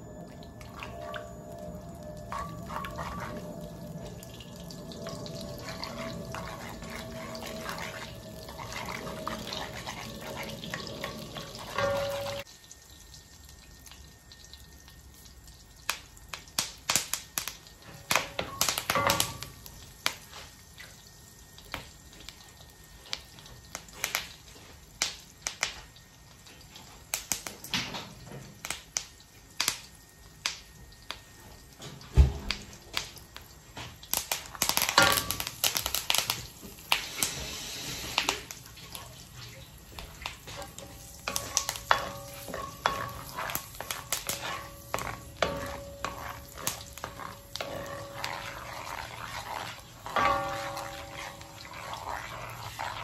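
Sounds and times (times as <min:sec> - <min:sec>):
fat sizzling in a wok: 0:00.0 - 0:53.0
crackling pops and spits: 0:32.4 - 0:42.0.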